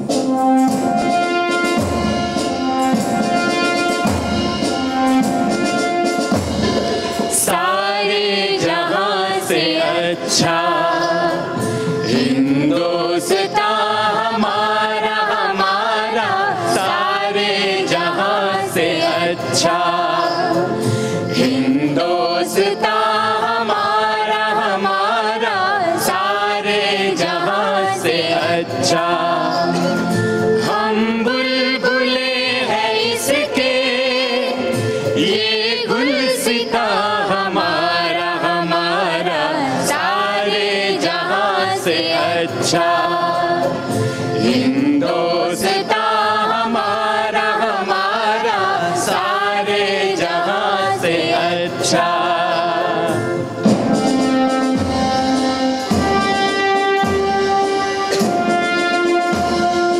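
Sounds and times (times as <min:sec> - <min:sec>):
sharp percussion strikes: 0:00.0 - 0:24.6, 0:49.0 - 0:59.9
instrumental backing: 0:00.0 - 0:59.9
person singing: 0:07.0 - 0:30.0, 0:30.7 - 0:53.4.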